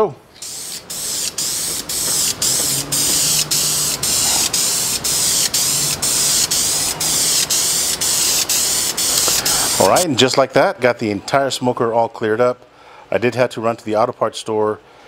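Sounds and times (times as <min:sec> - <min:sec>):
aerosol can spraying: 0:00.4 - 0:10.0.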